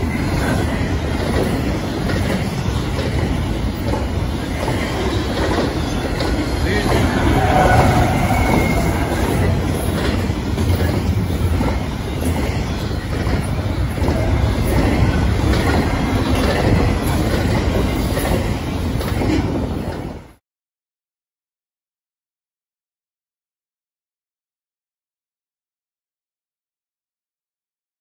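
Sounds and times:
wheels clicking over rail joints: 0.0 - 20.2
train wheels rumbling on rail: 0.0 - 20.4
high wheel squeal: 6.6 - 10.0.

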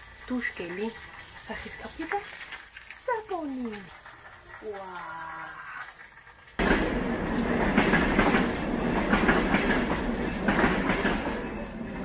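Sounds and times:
shower spray running: 0.0 - 7.6.

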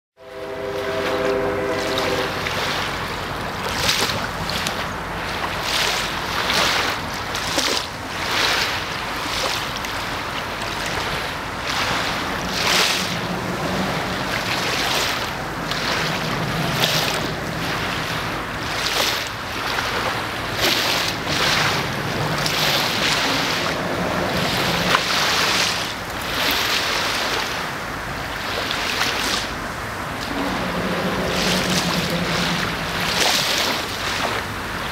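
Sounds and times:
river water lapping and splashing: 0.2 - 34.9
wind on microphone: 8.8 - 34.9.

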